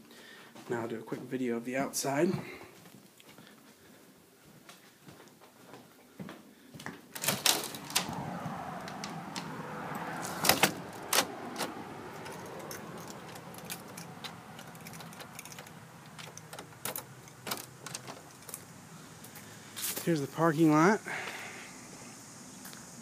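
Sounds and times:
door latch clicking: 0:07.2 - 0:08.2, 0:13.0 - 0:18.6.

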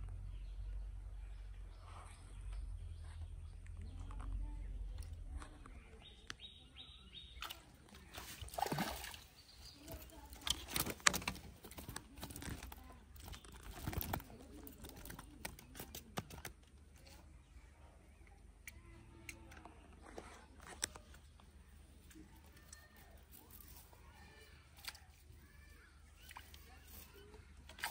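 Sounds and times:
water splashing: 0:07.4 - 0:12.7.

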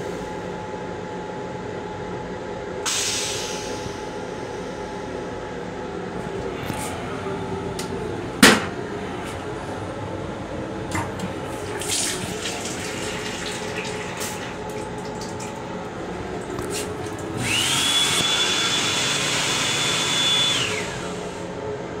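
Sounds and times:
hand dryer whining: 0:06.2 - 0:21.6
sink faucet running: 0:11.5 - 0:20.2.

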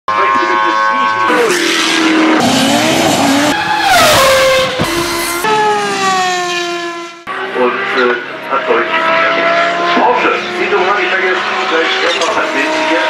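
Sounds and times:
race car engines revving: 0:00.1 - 0:13.0
race car passing by: 0:00.2 - 0:13.0.

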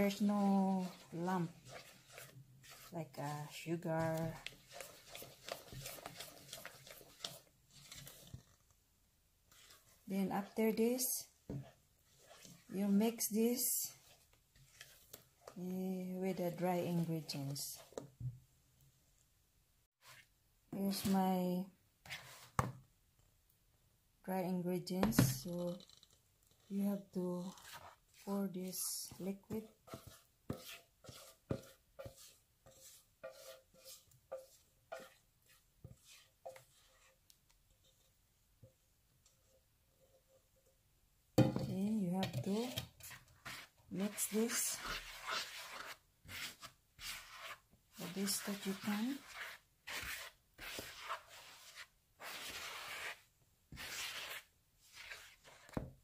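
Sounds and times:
spatula scraping metal bowl: 0:00.0 - 0:08.4, 0:09.5 - 0:18.0, 0:27.2 - 0:37.3, 0:42.1 - 0:55.8.

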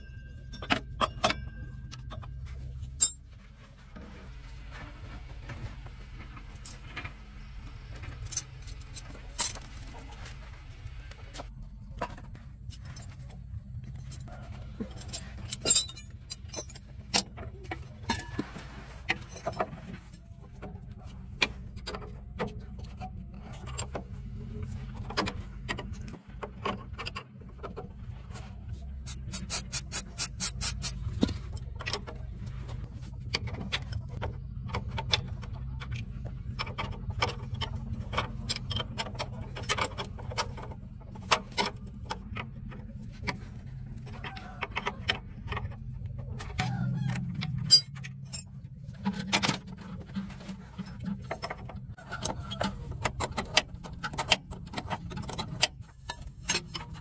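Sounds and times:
wrench clinking against bolts: 0:00.4 - 0:03.3, 0:15.0 - 0:17.3, 0:47.7 - 0:48.5.

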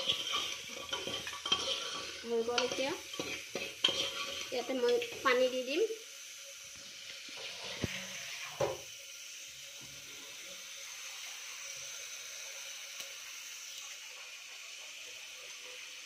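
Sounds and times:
ladle scraping pot: 0:00.0 - 0:05.2, 0:07.4 - 0:08.8
food sizzling in a pot: 0:00.0 - 0:16.0.

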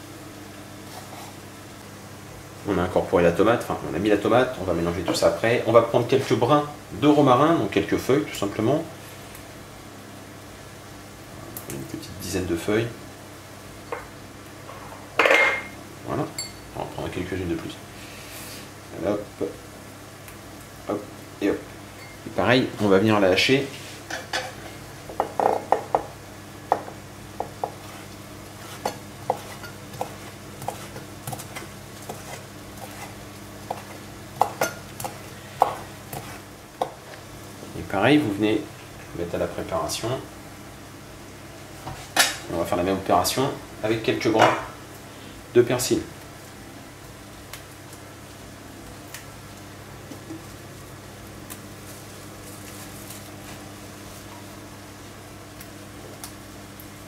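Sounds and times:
low background hum: 0:00.0 - 0:57.0
knife chopping on cutting board: 0:26.7 - 0:28.0, 0:28.6 - 0:33.1.

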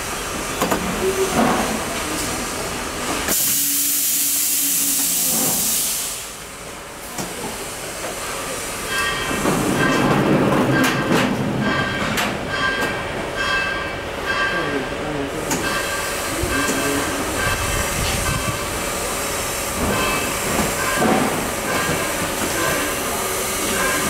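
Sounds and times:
compressed air venting hiss: 0:03.3 - 0:06.4.

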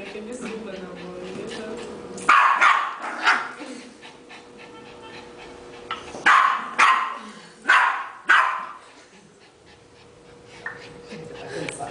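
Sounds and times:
small dog barking: 0:02.3 - 0:03.6, 0:06.2 - 0:08.8.

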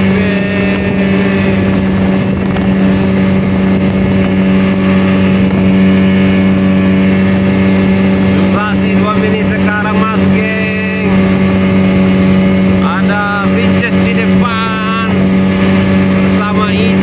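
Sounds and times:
speedboat engine droning: 0:00.0 - 0:17.0
water rushing along hull: 0:00.0 - 0:17.0.

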